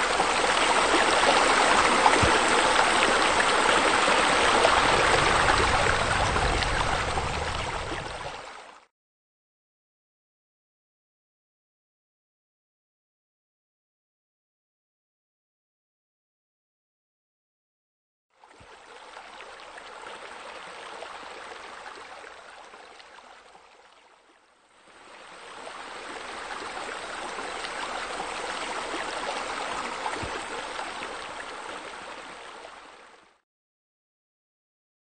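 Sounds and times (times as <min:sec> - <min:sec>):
fountain jets splashing: 0:00.0 - 0:08.6.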